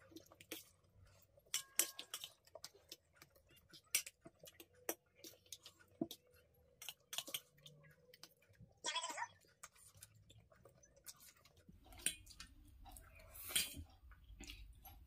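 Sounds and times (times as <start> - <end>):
forks clicking on steel plates: 1.4 - 2.4.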